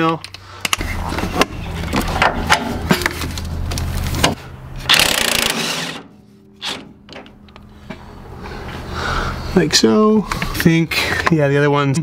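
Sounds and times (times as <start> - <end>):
impact wrench rattle: 4.9 - 8.0.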